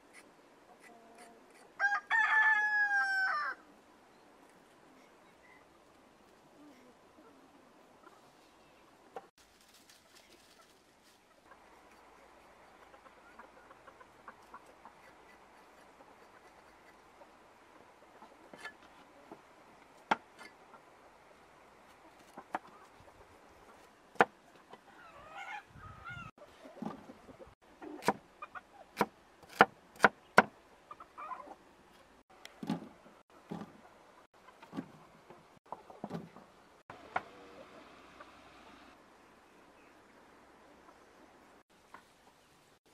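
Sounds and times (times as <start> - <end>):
cleaver chopping on wooden block: 29.0 - 30.5.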